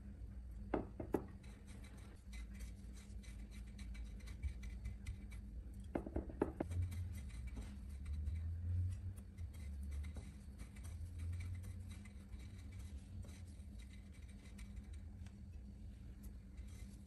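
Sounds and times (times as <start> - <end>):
soft scratching of coconut flakes: 1.3 - 5.8, 6.6 - 17.0.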